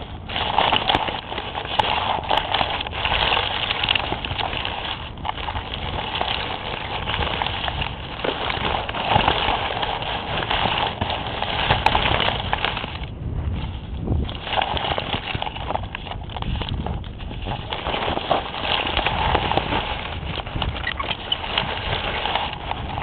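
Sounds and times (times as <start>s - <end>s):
leaves rustling against microphone: 0.0s - 23.0s.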